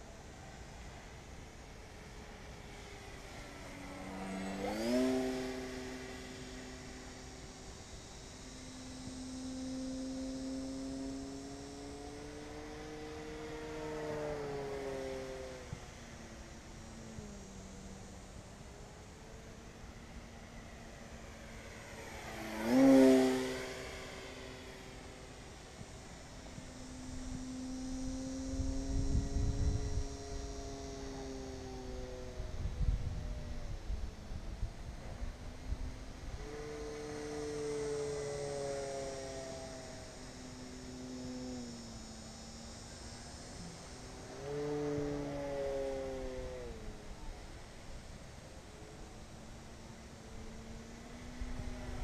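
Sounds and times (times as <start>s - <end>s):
model plane electric motor: 0.0s - 52.0s
wind rumbling on microphone: 25.6s - 37.8s.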